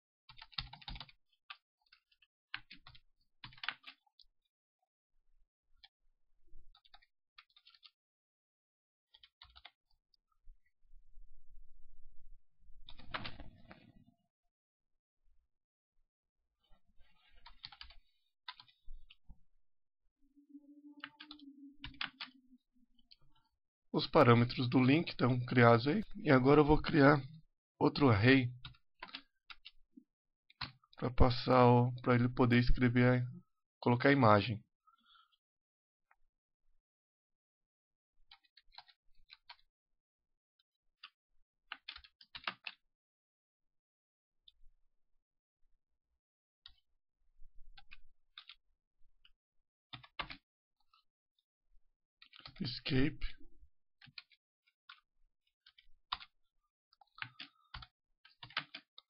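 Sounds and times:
faint keyboard typing: 0.3 - 4.3, 6.7 - 8.0, 9.1 - 9.8, 12.8 - 14.0, 16.7 - 19.2, 20.8 - 22.4, 24.5 - 29.8, 38.3 - 39.6, 41.0 - 42.8, 47.7 - 48.6, 49.9 - 51.0, 52.2 - 53.4, 54.0 - 55.0, 55.6 - 56.3, 57.0 - 59.0.

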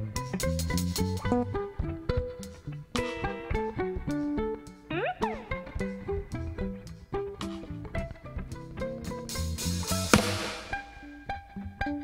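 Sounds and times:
plucked string notes: 1.2 - 9.4
drum and cymbal crash: 10.1 - 11.0.

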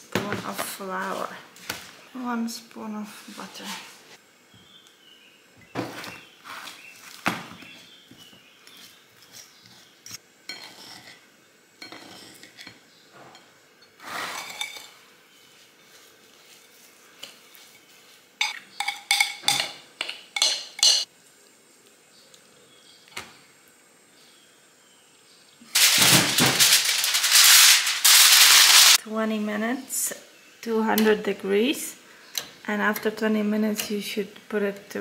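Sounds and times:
spoon clinking against dish: 20.4 - 21.1.

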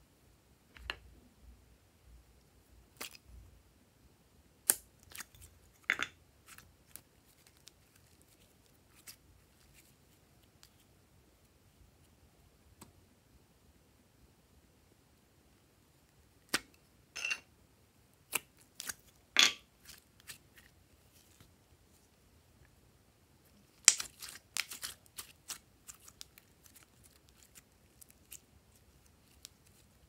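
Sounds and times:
slime crackling and popping: 23.7 - 29.9.

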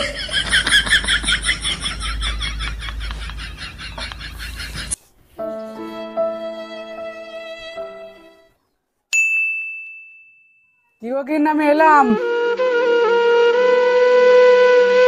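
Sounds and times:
high bell ding: 9.2 - 11.0.

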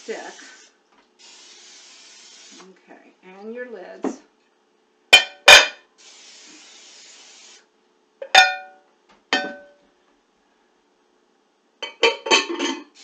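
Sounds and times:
cooking spray can hissing: 0.0 - 2.7, 6.0 - 7.7
ringing clinks of glass dishes: 8.4 - 8.8.

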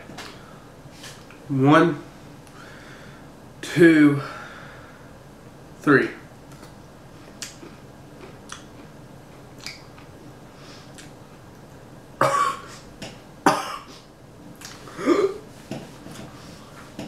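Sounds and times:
young man coughing hard: 12.2 - 12.7, 13.4 - 14.0.

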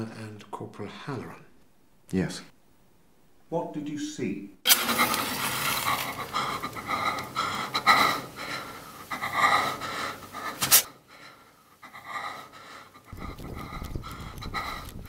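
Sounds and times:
man panting: 6.0 - 15.0.

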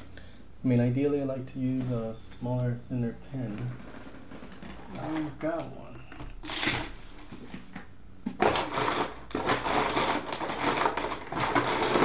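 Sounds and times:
small objects rummaged through: 3.6 - 5.4, 8.4 - 12.0.

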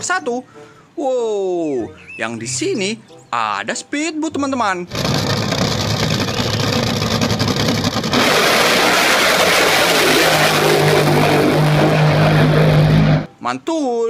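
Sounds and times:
hissing water spray: 4.9 - 11.9
powerboat engines at full throttle: 4.9 - 13.3.

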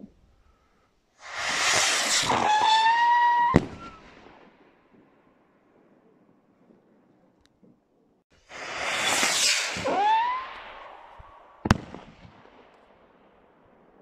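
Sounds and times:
firework bang: 1.2 - 4.1, 8.5 - 12.6
firework whistling rush: 1.2 - 4.4, 8.4 - 12.2.

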